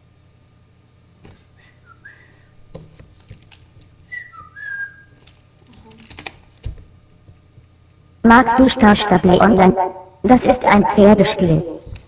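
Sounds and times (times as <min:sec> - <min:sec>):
person whistling: 0:01.6 - 0:02.5, 0:04.1 - 0:05.2.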